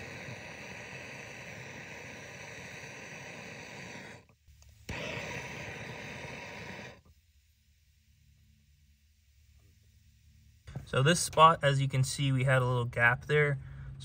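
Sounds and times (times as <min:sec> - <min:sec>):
torch igniter click: 0:00.0 - 0:07.1
gas torch flame hissing: 0:00.0 - 0:11.5.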